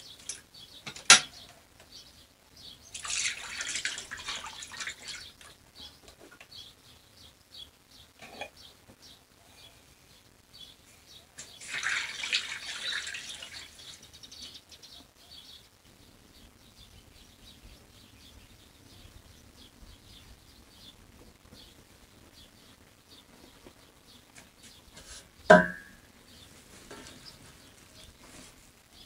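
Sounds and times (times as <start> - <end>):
small birds chirping: 0.0 - 25.5, 26.1 - 29.0
pouring into a steel bowl: 2.9 - 5.5, 11.4 - 14.1.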